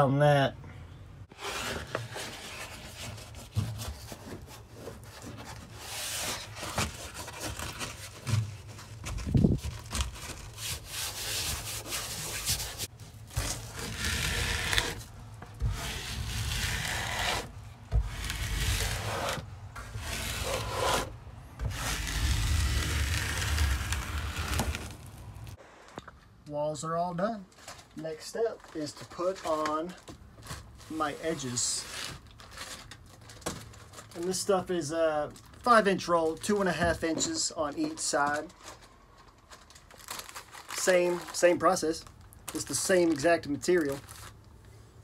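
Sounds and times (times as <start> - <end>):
trowel scraping over membrane: 10.6 - 15.0, 15.6 - 25.0.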